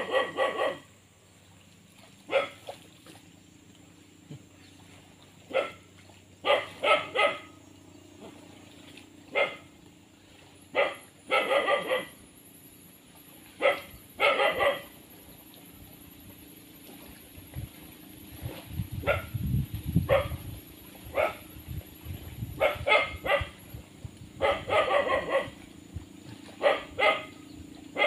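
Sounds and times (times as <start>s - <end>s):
dog barking: 0.0s - 0.9s, 2.3s - 2.6s, 5.5s - 5.8s, 6.4s - 7.5s, 9.3s - 9.7s, 10.7s - 12.2s, 13.6s - 14.9s, 19.0s - 19.3s, 20.1s - 20.4s, 21.1s - 21.4s, 22.6s - 23.6s, 24.4s - 25.6s, 26.6s - 27.3s.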